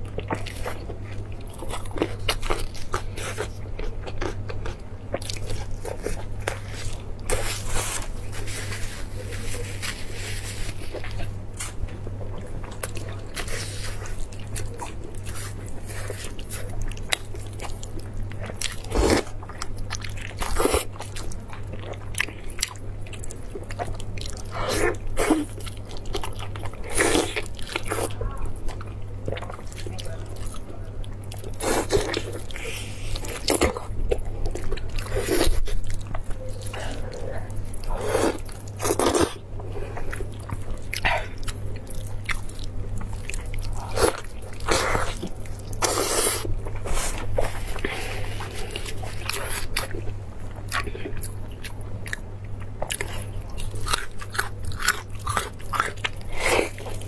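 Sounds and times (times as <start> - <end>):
steady low hum: 0.0 - 57.0
person biting and chewing meat: 31.2 - 57.0.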